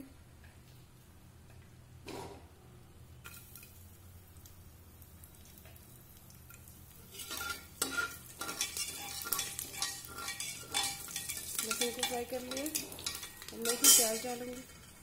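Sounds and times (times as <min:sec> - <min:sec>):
garlic sizzling in hot oil: 0:03.2 - 0:15.0
spatula scraping metal pot: 0:07.0 - 0:15.0.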